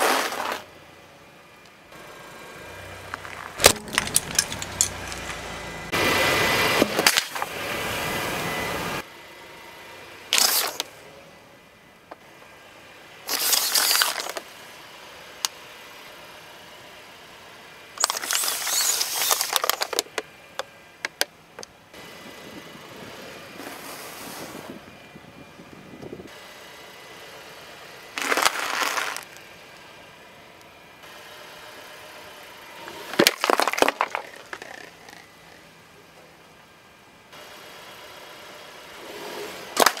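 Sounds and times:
plastic bottles crunching: 3.2 - 5.4, 13.3 - 14.4, 18.0 - 20.1, 28.2 - 29.4, 33.2 - 35.3, 39.8 - 40.0.

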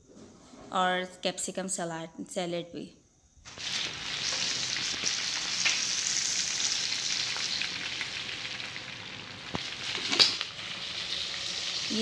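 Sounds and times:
fish sizzling in hot oil: 3.5 - 12.0.

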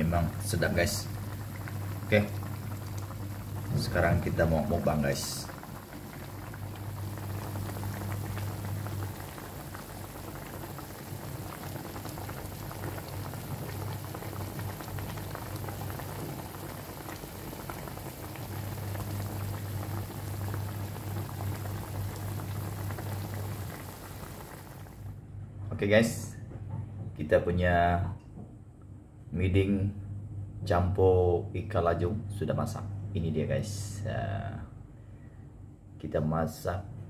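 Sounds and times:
soup bubbling in a wok: 0.2 - 25.2.

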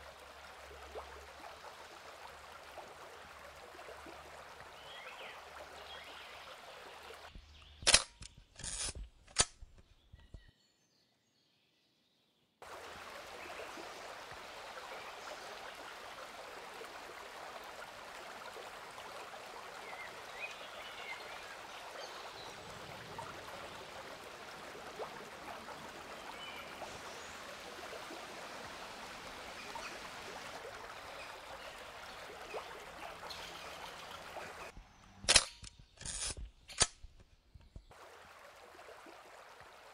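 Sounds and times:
sharp clicks: 7.8 - 9.8, 35.2 - 37.7
river water rushing: 12.6 - 34.7, 38.0 - 39.9.

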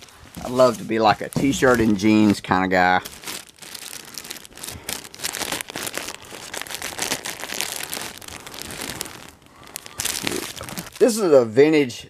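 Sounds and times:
plastic bags crinkling: 0.0 - 11.4.

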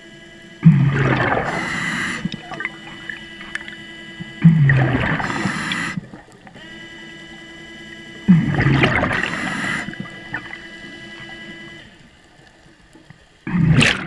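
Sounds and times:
underwater motor whine: 0.0 - 14.0
diver's breath bubbles: 0.6 - 2.7, 4.4 - 6.3, 8.3 - 10.0, 13.5 - 14.0.

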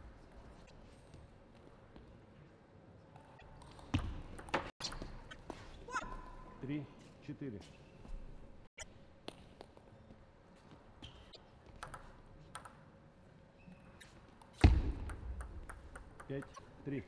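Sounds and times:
table tennis ball clicking: 11.8 - 12.8, 14.9 - 16.6.

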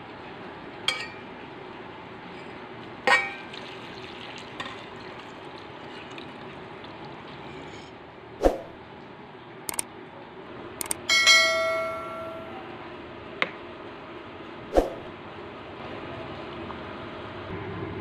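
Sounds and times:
water pouring into a metal pot: 3.2 - 7.7.

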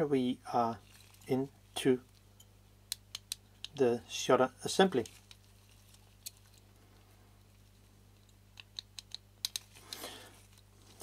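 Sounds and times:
soft rustle: 0.7 - 2.4, 4.7 - 8.4, 9.6 - 11.0.

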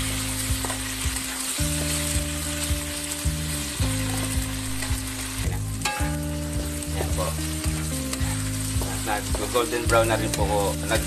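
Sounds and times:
background music chords: 0.0 - 11.0
tofu sizzling in hot oil: 0.0 - 11.0
wooden spatula turning food: 3.8 - 11.0.

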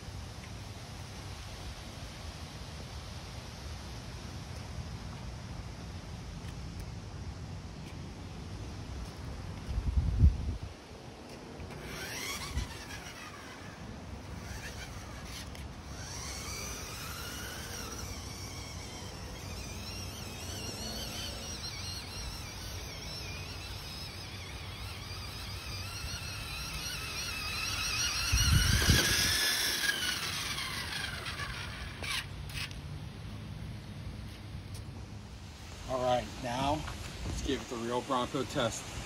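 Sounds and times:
toy truck electric motors whining: 11.3 - 33.0.

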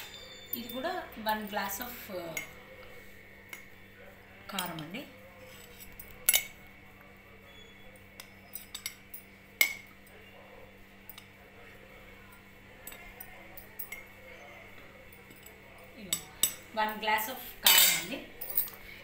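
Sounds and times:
spoon clinking against glass: 0.0 - 1.0, 7.5 - 10.3, 12.3 - 14.5.

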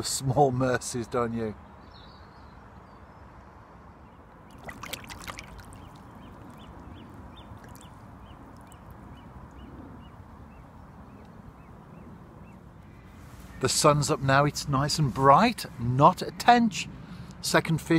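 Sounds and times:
faint water noise: 4.3 - 10.2
fish splashing in water: 4.4 - 9.0.

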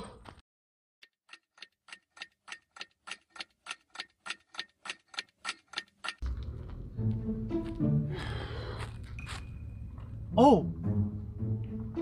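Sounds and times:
clock ticking: 1.0 - 6.3
steady background sound: 1.0 - 12.0.

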